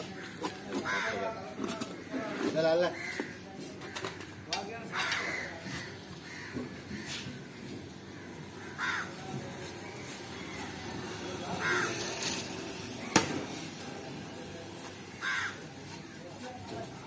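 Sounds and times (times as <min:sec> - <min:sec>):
crows cawing: 0:00.0 - 0:09.4, 0:11.5 - 0:12.2, 0:15.0 - 0:16.2
low background murmur: 0:00.0 - 0:17.0.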